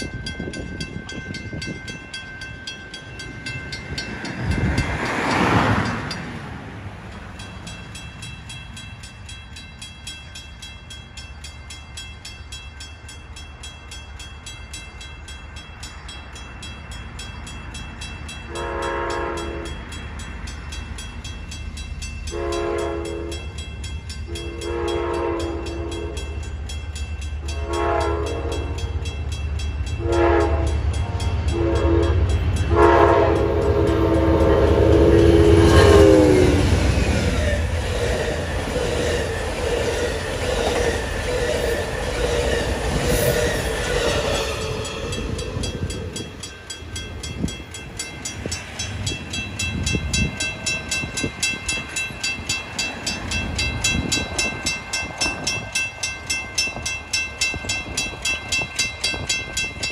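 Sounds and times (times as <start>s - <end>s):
locomotive engine rumble: 14.8s - 59.9s
locomotive horn blasts: 18.5s - 19.9s, 22.3s - 23.6s, 24.3s - 26.4s, 27.4s - 29.0s, 30.0s - 36.8s.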